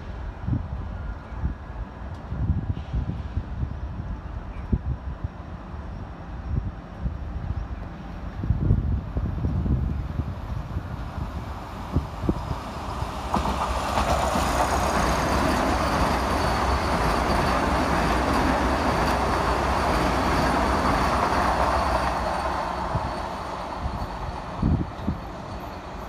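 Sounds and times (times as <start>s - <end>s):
train wheels rushing on rails: 6.9s - 26.0s.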